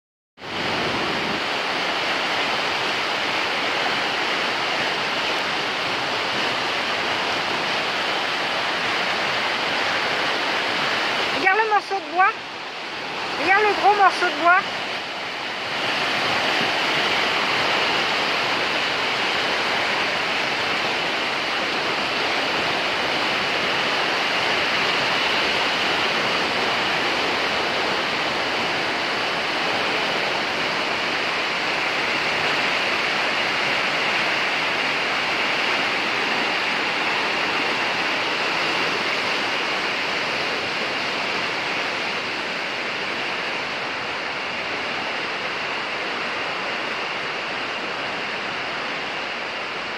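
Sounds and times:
river water rushing: 0:00.4 - 0:49.9.

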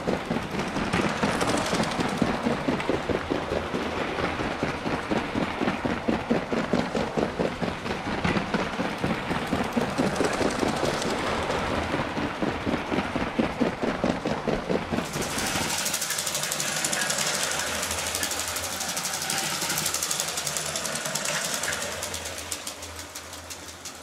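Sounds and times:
hissy rattle: 0:00.0 - 0:08.1, 0:14.2 - 0:24.0
toy train rhythmic clatter: 0:00.0 - 0:24.0.

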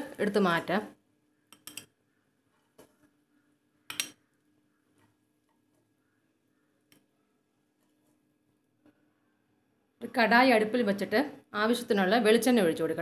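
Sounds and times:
spoon clicking on pan and bowl: 0:01.5 - 0:02.0, 0:03.9 - 0:04.2.

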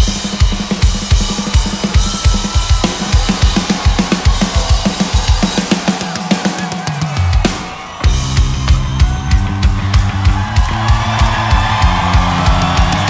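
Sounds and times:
drum kit beat: 0:00.0 - 0:13.0
guitar: 0:00.0 - 0:13.0
rock music: 0:00.0 - 0:13.0
bass line: 0:07.2 - 0:13.0.

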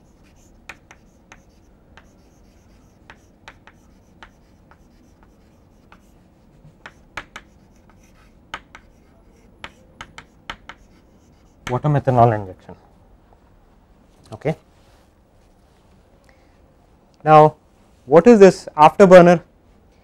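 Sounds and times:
chalk tapping and scratching: 0:00.0 - 0:12.0.

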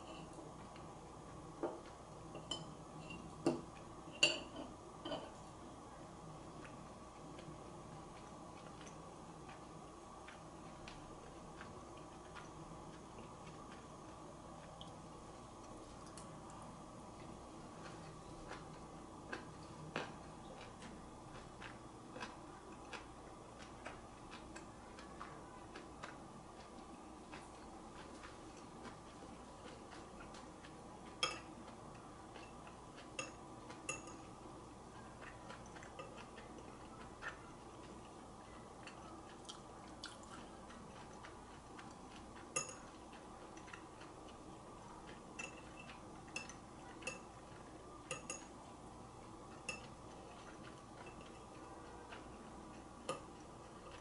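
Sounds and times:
faint steady hum: 0:00.0 - 0:54.0
chopsticks clinking against bowls: 0:32.3 - 0:34.3, 0:42.5 - 0:43.0, 0:45.4 - 0:48.6, 0:49.5 - 0:54.0.

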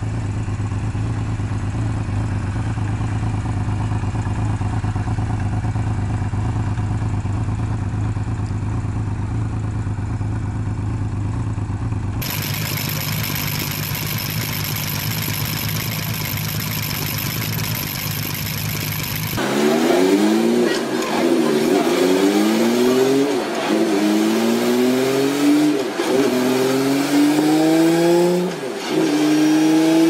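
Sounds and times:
motorcycle engine idling: 0:00.0 - 0:19.4
six-cylinder engine idling: 0:12.0 - 0:19.4.

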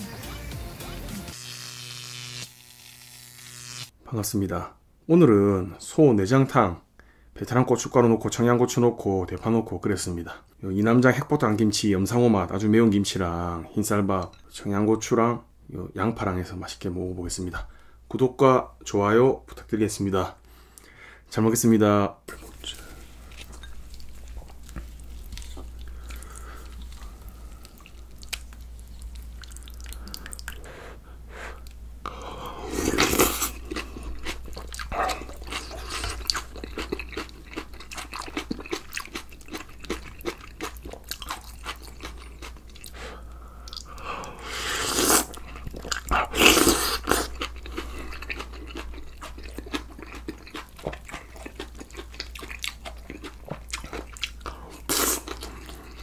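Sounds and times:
person chewing and crunching: 0:22.3 - 0:30.7, 0:31.6 - 0:56.0.

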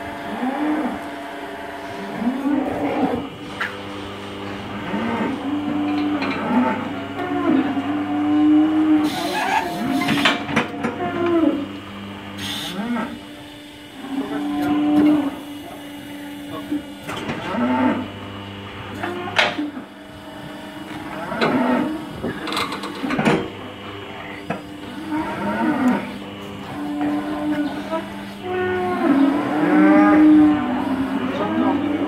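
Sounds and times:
steady low hum: 0:00.0 - 0:32.0
cow mooing: 0:12.5 - 0:13.2, 0:13.9 - 0:15.7, 0:17.3 - 0:18.1, 0:20.8 - 0:22.4, 0:24.2 - 0:32.0.

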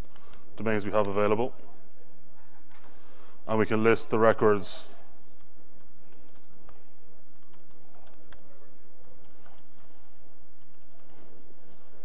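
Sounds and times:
laptop keyboard typing: 0:00.0 - 0:01.1, 0:05.3 - 0:12.0
steady low hum: 0:00.0 - 0:12.0.

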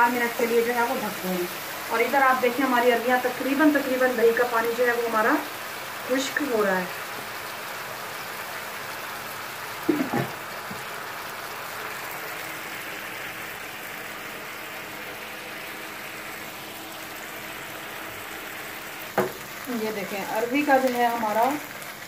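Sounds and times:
liquid bubbling in a frying pan: 0:06.9 - 0:22.0.

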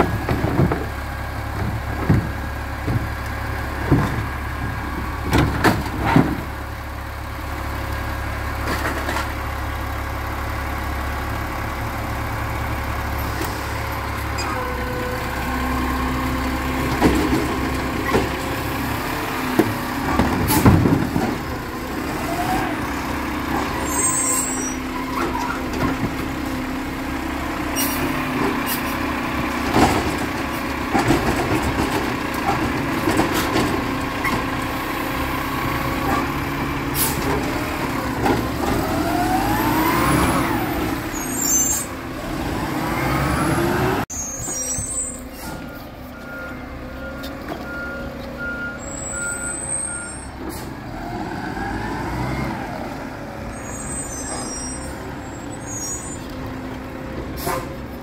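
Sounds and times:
clanks and knocks: 0:00.0 - 0:06.5, 0:29.6 - 0:34.6
garbage truck engine revving: 0:00.0 - 0:58.0.

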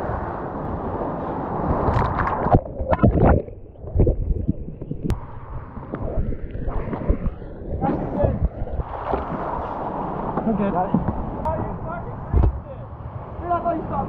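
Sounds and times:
churning water: 0:00.0 - 0:12.6
thumps underwater: 0:01.9 - 0:05.2, 0:05.8 - 0:09.4, 0:12.3 - 0:12.6.

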